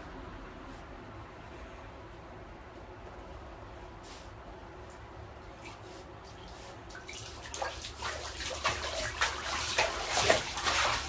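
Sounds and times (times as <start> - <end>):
water splashing: 6.3 - 11.0.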